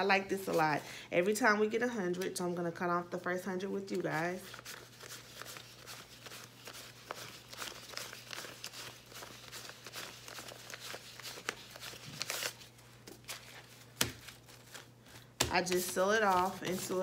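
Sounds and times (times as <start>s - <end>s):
paper bills flicking and rustling: 4.3s - 17.0s.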